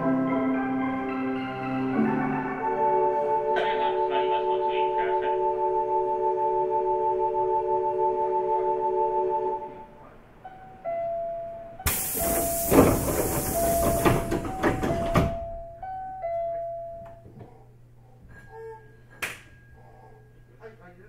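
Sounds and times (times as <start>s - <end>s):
pneumatic train doors hissing: 11.8s - 15.5s.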